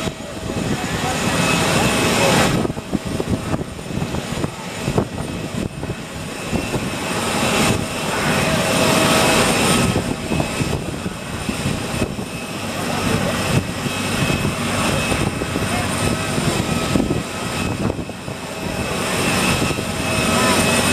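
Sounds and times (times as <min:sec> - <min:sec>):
distant aircraft engines whining: 0:00.0 - 0:20.9
rain and wind on microphone: 0:01.7 - 0:06.9.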